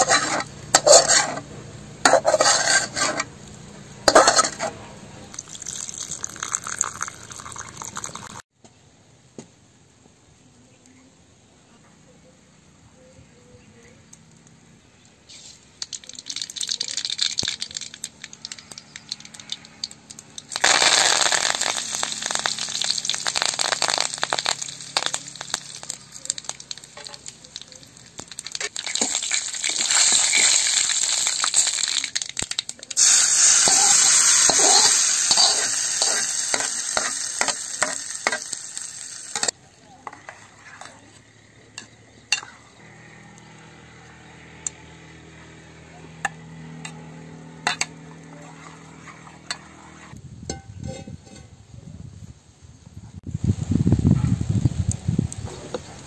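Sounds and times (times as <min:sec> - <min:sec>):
hot oil sizzling: 0:00.0 - 0:08.4, 0:14.0 - 0:56.0.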